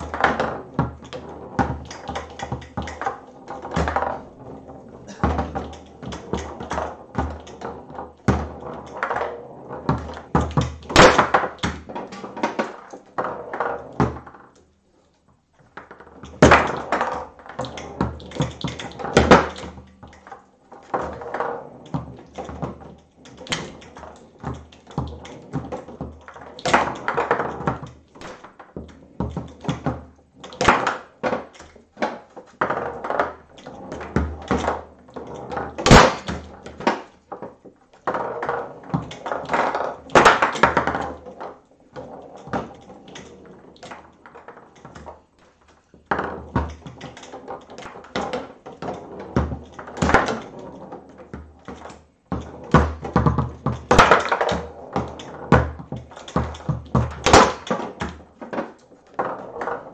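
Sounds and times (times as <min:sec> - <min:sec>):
foosball ball knocking: 0:00.0 - 0:14.4, 0:15.8 - 0:37.5, 0:38.1 - 0:45.2, 0:46.0 - 0:59.9
foosball rods clacking: 0:00.0 - 0:14.7, 0:15.6 - 0:59.9.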